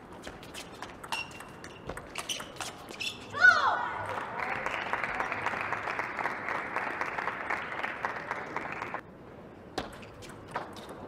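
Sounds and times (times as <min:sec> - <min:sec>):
audience applauding: 0:04.1 - 0:09.0.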